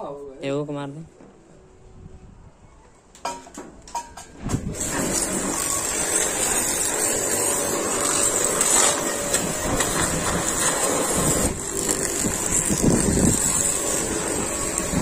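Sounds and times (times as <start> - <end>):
pressure washer spraying metal: 4.6 - 15.0.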